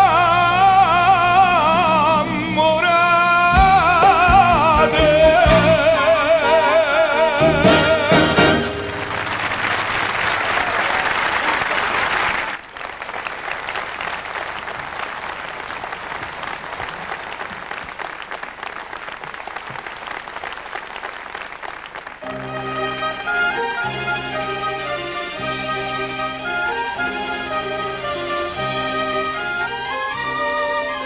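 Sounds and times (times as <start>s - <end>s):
audience applause: 8.6s - 23.8s.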